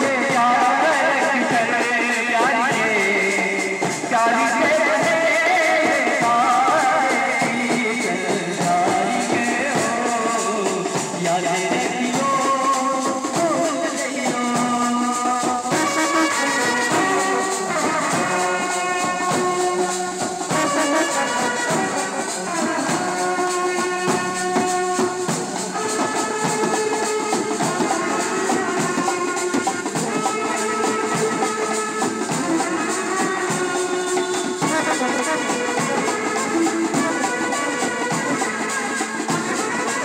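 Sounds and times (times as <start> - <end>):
brass band playing melody: 0.0 - 40.0
fast percussion beat: 0.0 - 40.0.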